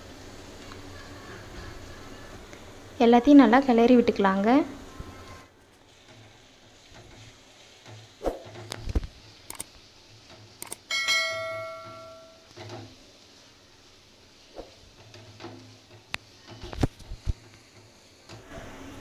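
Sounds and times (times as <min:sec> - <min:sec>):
bell-like chime: 0:10.9 - 0:12.4.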